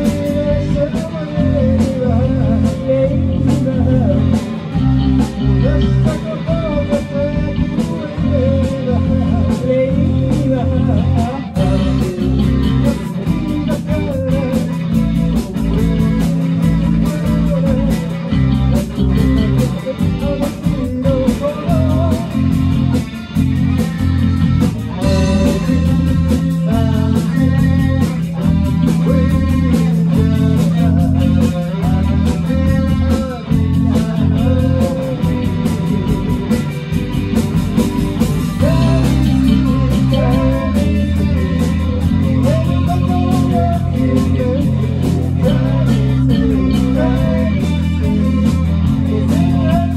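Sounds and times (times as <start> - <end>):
bass guitar: 0.0 - 49.9
drum kit beat: 0.0 - 49.9
electric guitar: 0.0 - 49.9.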